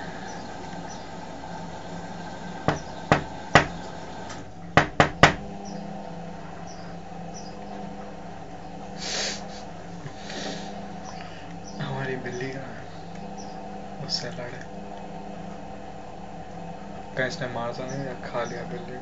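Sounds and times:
knocking on a window pane: 2.7s - 3.8s, 4.8s - 5.4s.

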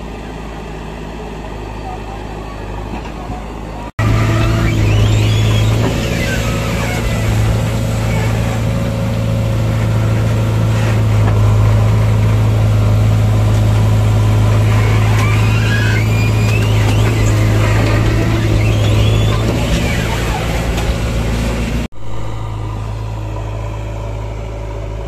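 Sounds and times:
diesel engine drone: 0.0s - 25.0s
hydraulic whines: 0.0s - 25.0s.

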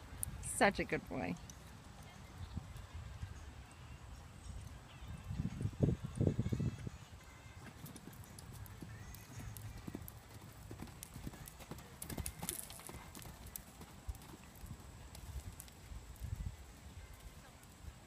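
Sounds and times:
horse hoofbeats on sand: 5.5s - 17.4s.

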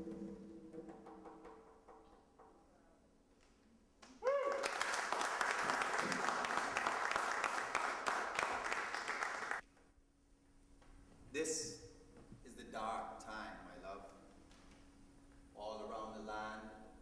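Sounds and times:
audience applauding: 4.0s - 9.6s.

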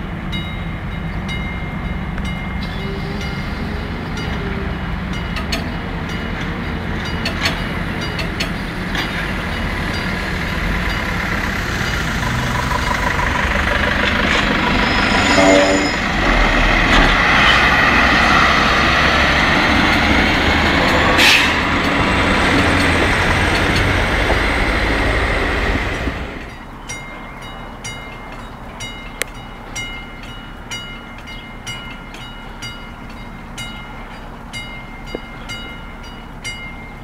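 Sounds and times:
diesel railcar passing: 0.0s - 37.0s
train horn blast: 14.6s - 16.8s.

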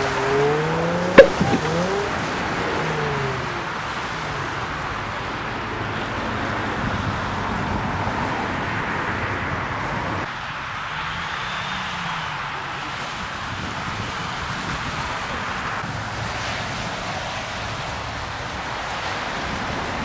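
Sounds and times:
vehicle engine: 0.0s - 5.6s
wind on microphone: 1.1s - 2.3s.

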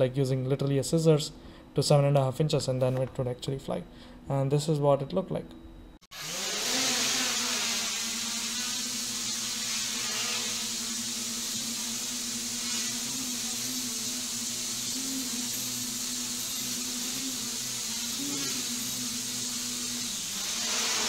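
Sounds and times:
drone motors humming: 6.1s - 21.0s
propeller hiss: 6.2s - 21.0s.

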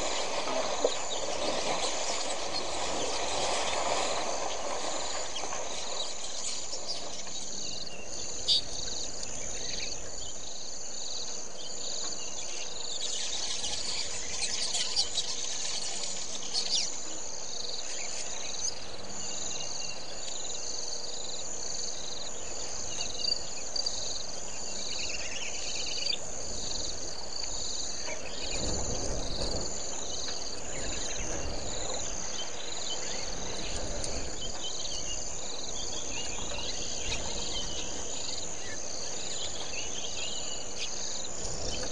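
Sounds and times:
bird chirps: 0.0s - 20.5s
insects trilling: 0.0s - 41.9s.

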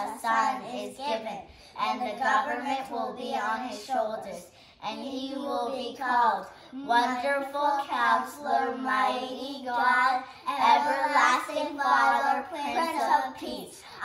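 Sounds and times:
children singing: 0.0s - 1.0s, 7.0s - 14.0s.

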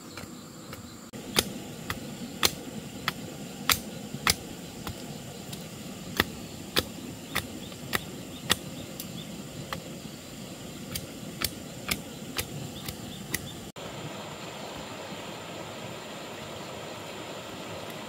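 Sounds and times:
machete chopping a stick: 1.3s - 5.0s, 6.1s - 8.7s.

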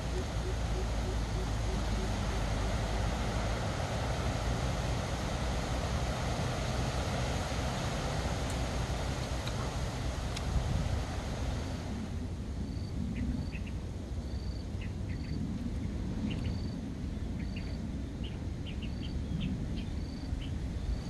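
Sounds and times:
birds chirping: 0.0s - 5.7s
insects chirping: 0.0s - 12.0s, 12.6s - 15.4s
steady low rumble: 0.0s - 21.0s.

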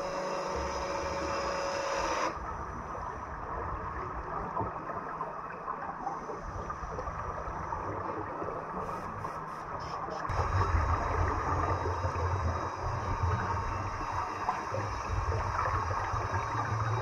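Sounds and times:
muffled underwater rumble: 2.4s - 17.0s
bubbles gurgling: 10.3s - 17.0s.

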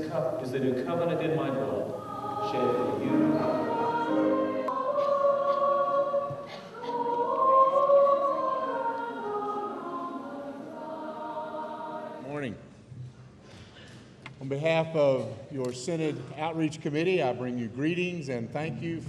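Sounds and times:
choir singing sacred music: 0.0s - 12.9s.

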